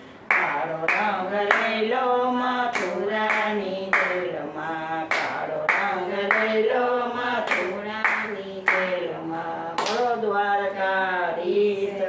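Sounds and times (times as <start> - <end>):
women singing devotional song: 0.2 - 12.0
hand claps: 0.3 - 1.8, 2.7 - 4.2, 5.1 - 6.6, 7.4 - 9.0, 9.8 - 10.1.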